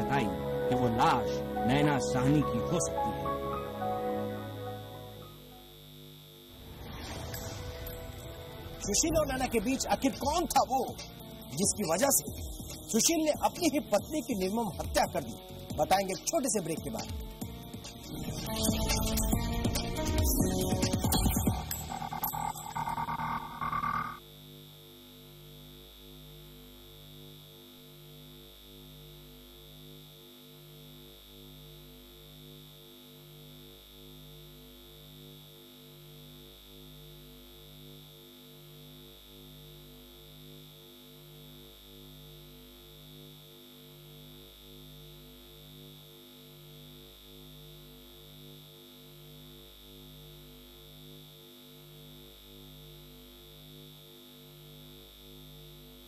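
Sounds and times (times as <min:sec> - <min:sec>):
thin high whine: 0:00.0 - 0:24.9
pulsing electronic hum: 0:00.0 - 0:56.0.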